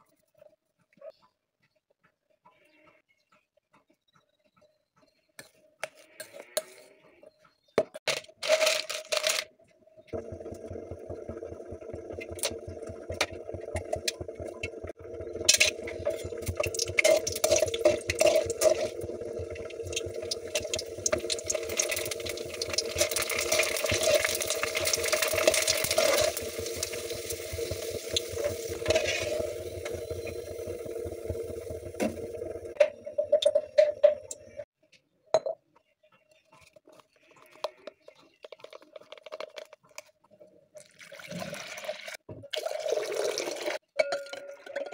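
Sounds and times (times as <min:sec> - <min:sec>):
low steady hum: 0:10.0 - 0:34.7
frying in hot oil sizzling: 0:10.4 - 0:34.6, 0:40.9 - 0:43.8
spoon scraping steel bowl: 0:15.4 - 0:26.4, 0:28.3 - 0:30.4.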